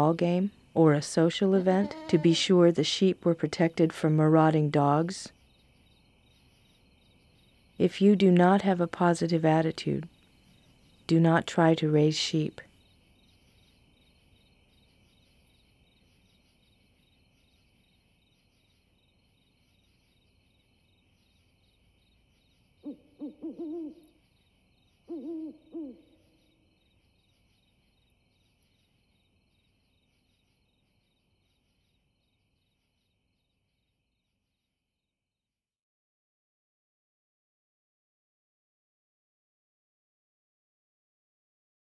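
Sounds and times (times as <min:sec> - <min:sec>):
crickets chirping: 0:00.0 - 0:34.8
owl hooting: 0:22.4 - 0:26.6.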